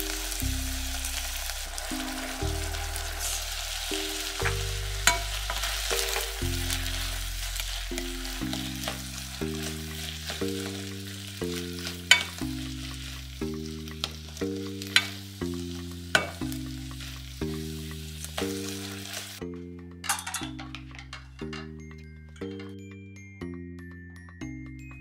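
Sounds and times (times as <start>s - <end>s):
meat sizzling in a pan: 0.0s - 19.4s
background music: 0.0s - 25.0s
spatula clicking against pan: 7.9s - 21.8s.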